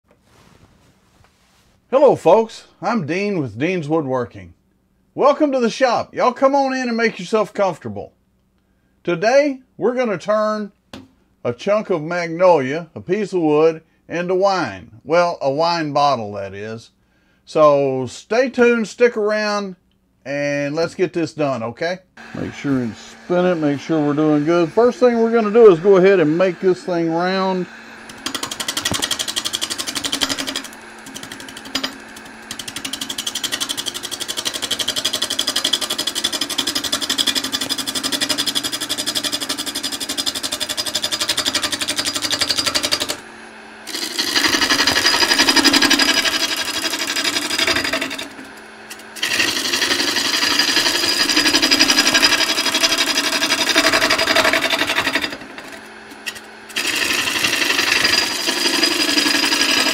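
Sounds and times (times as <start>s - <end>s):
lathe humming: 22.2s - 59.9s
lathe gouge rapid ticking rattle: 28.0s - 43.2s, 43.9s - 59.9s.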